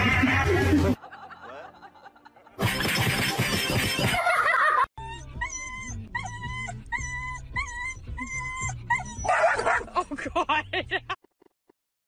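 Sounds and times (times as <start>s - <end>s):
dog whining and yipping: 5.0s - 9.8s.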